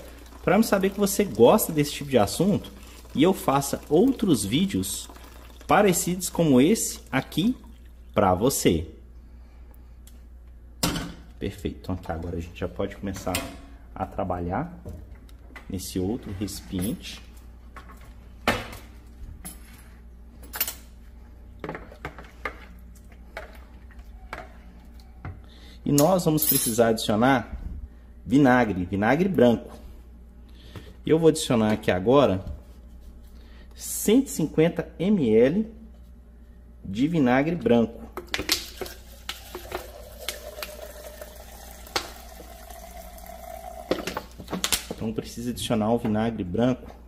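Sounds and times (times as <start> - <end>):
liquid trickling into plastic jug: 0.0 - 6.3, 38.5 - 44.8.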